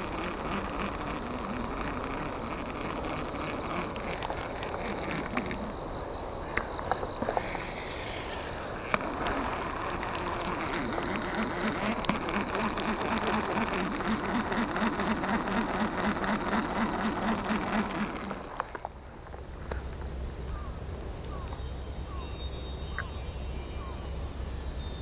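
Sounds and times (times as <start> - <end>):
reel gears whirring and ticking: 0.0 - 5.6, 8.8 - 18.8
fishing reel spool whirring: 0.0 - 5.9, 7.5 - 18.8.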